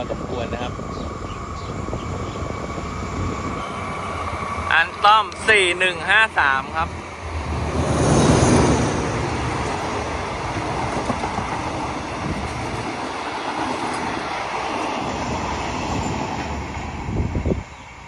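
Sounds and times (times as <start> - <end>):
diesel locomotive passing: 0.0 - 18.0
train wheels on rails: 0.0 - 18.0.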